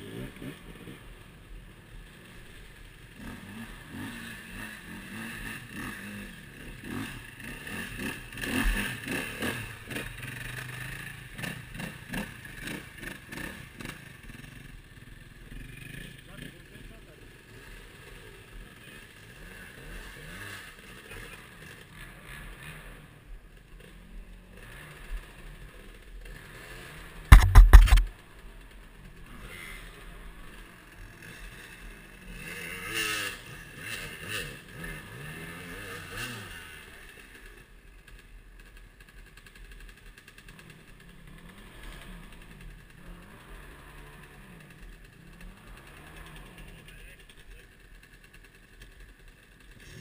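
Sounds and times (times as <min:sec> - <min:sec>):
dirt bike engines revving: 0:00.0 - 0:50.0
very loud knock: 0:27.3 - 0:28.1.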